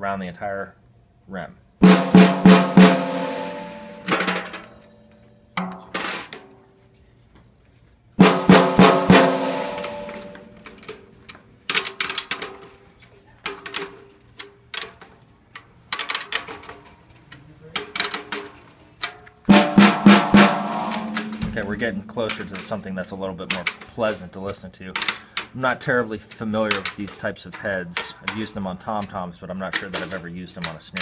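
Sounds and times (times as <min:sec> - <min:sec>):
snare drum hits: 0:01.8 - 0:04.5, 0:08.2 - 0:10.5, 0:19.5 - 0:22.2.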